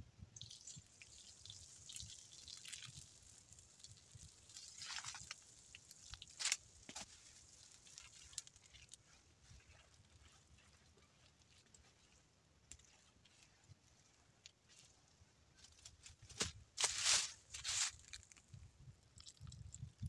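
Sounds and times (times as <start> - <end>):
brush scraping on timber: 15.6 - 18.1.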